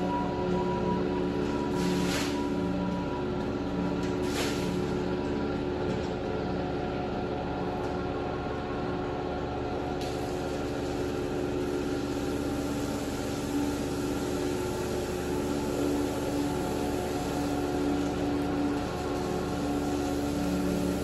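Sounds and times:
pressure washer motor hum: 8.5 - 21.0
water jet hissing: 12.0 - 18.1.

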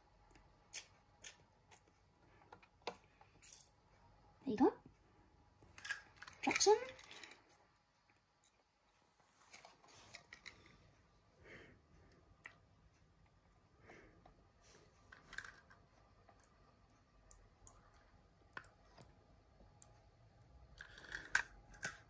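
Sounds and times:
toy cars clicking and tapping: 20.7 - 22.0.

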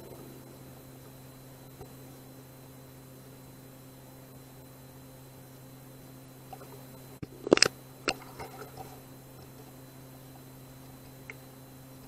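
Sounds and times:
electrical hum: 0.0 - 12.0
faint ticks: 10.4 - 11.5.

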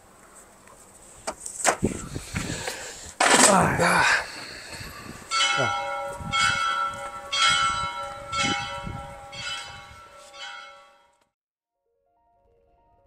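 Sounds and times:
church bell tolling: 5.3 - 11.2.

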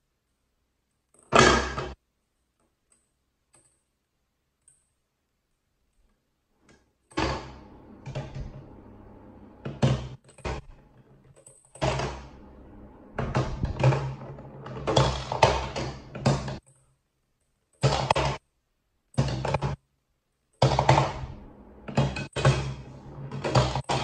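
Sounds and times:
plastic knocks and clatter: 13.2 - 16.8, 20.6 - 24.0.

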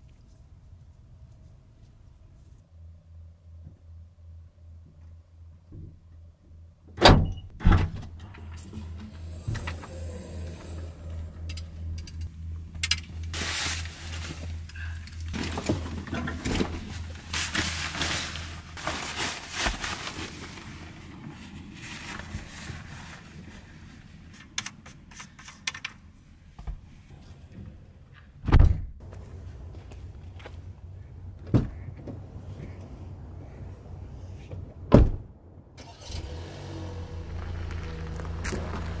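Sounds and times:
low steady hum: 0.0 - 24.6
bags and clothing rustling: 13.3 - 24.0.

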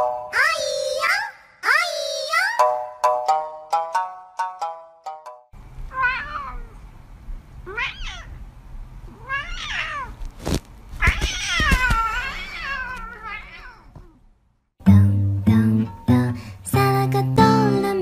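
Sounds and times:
cat meowing: 5.9 - 6.8, 7.6 - 8.4, 9.1 - 10.2, 11.0 - 14.2.

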